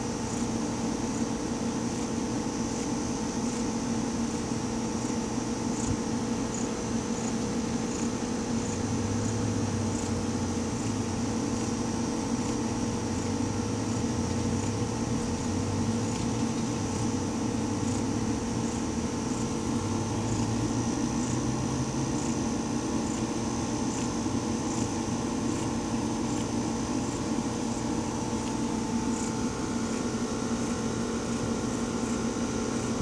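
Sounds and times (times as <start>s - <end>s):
steady machine hum: 0.0s - 33.0s.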